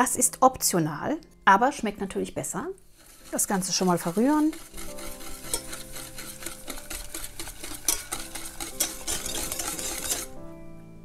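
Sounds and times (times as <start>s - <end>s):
wire whisk scraping a metal pan: 2.9s - 10.4s.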